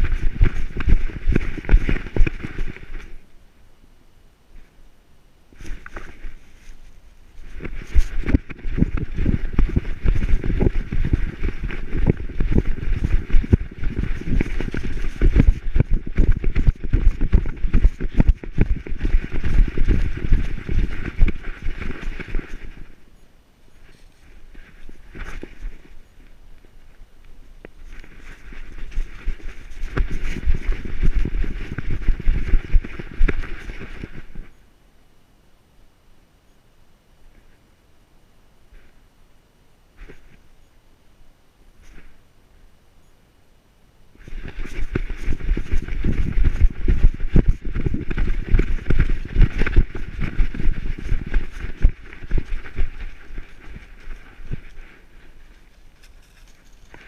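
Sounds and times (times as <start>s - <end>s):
dog paws thudding: 0.0s - 3.2s, 7.5s - 22.8s, 27.8s - 34.4s, 44.2s - 57.0s
rustle of dry leaves: 5.5s - 34.6s, 44.2s - 57.0s.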